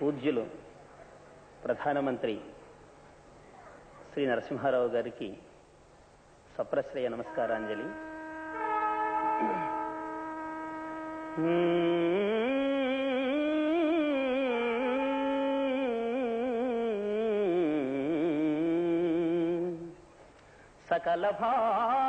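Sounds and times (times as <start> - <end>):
man singing melodic phrase: 7.2 - 20.0.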